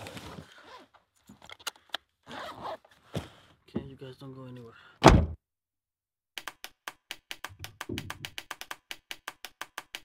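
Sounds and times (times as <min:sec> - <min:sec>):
wood-block-like ticking: 0:06.4 - 0:10.0.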